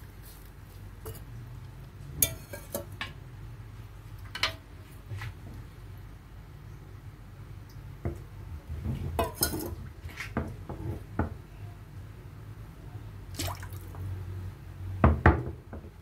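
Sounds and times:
clinks and knocks in a wok: 4.3s - 4.6s, 9.0s - 9.8s
small splashes of broth: 13.3s - 14.1s.

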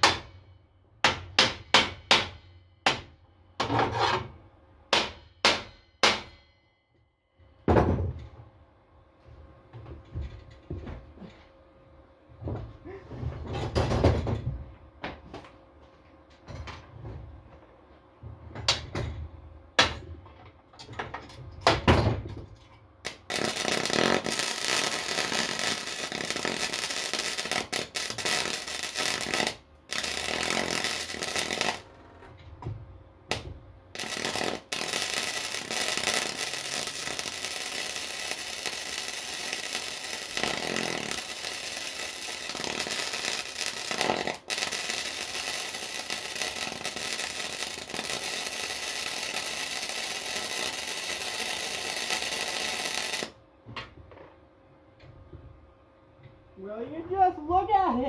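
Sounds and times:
welding arc crackling: 23.0s - 31.9s, 33.3s - 53.4s.

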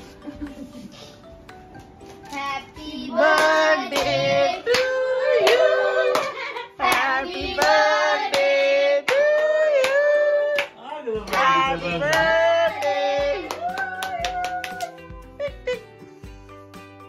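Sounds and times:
people singing together: 2.4s - 10.4s, 11.2s - 13.8s
people clapping in time: 3.4s - 15.2s.

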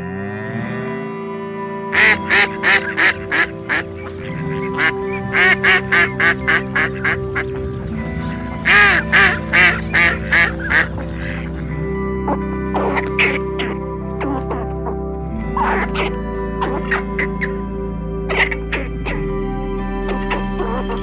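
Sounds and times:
background music: 0.0s - 21.0s
mallard quacking: 2.0s - 7.7s, 8.6s - 11.5s, 12.3s - 15.0s, 15.6s - 17.6s, 18.3s - 19.2s, 20.1s - 21.0s.

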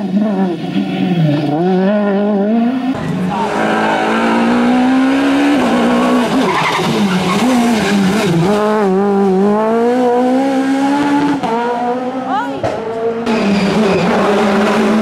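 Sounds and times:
rally car engine at high revs: 0.0s - 15.0s.

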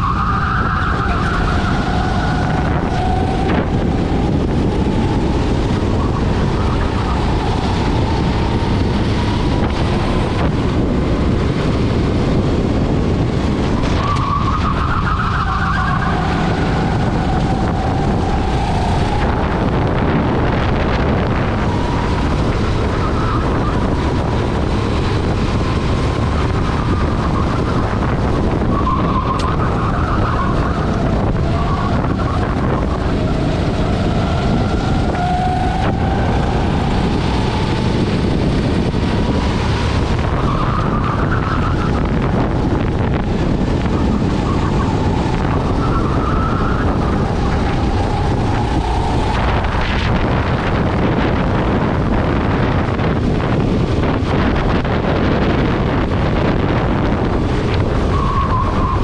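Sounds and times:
racing kart engine: 0.0s - 59.0s
wind on microphone: 0.0s - 59.0s.

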